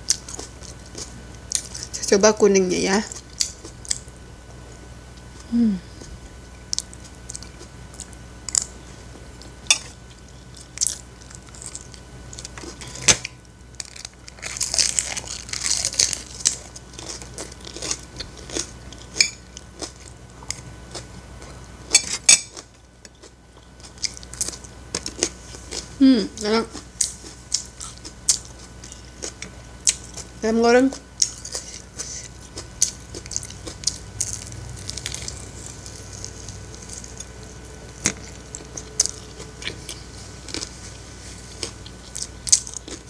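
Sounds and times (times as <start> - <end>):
chewing close to mic: 6.6 - 8.8, 13.8 - 26.0, 26.7 - 43.0
crisp cabbage crunching: 9.4 - 30.3, 31.2 - 43.0.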